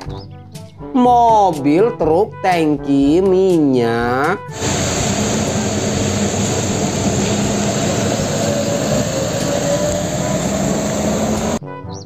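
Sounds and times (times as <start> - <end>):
diesel truck engine drone: 4.5 - 11.6
tyres hissing on wet road: 4.5 - 11.6.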